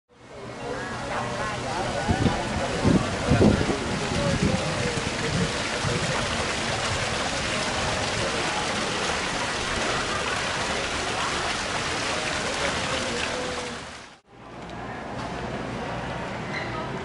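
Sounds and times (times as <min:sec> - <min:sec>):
fountain water splashing: 0:00.3 - 0:14.2.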